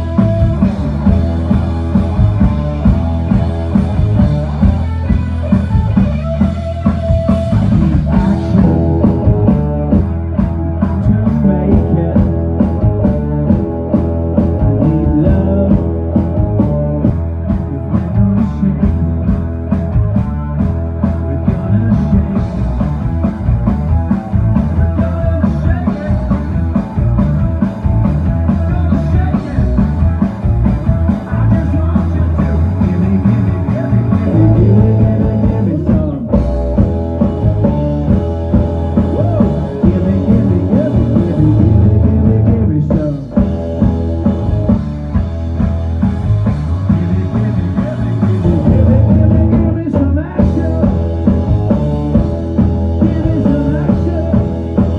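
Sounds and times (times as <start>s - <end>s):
rock band playing live: 0.0s - 54.9s.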